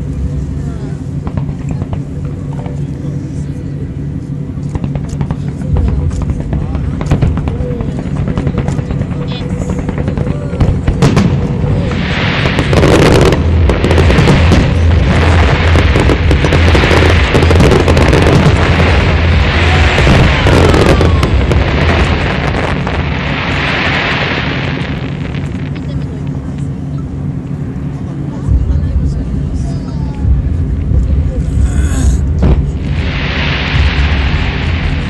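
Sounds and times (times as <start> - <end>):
crackling firework glitter: 4.6 - 28.4.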